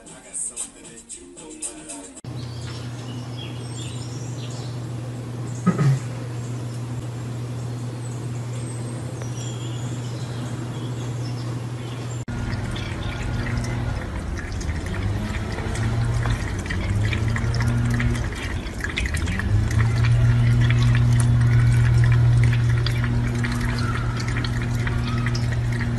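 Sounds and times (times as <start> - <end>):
steady low hum: 2.3 - 25.9
small splashes: 8.2 - 25.9
faucet water running into sink: 12.2 - 25.9.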